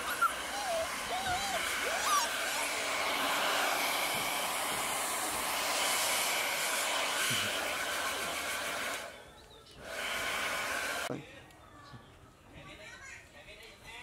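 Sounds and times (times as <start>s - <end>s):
hair dryer blowing: 0.0s - 11.1s.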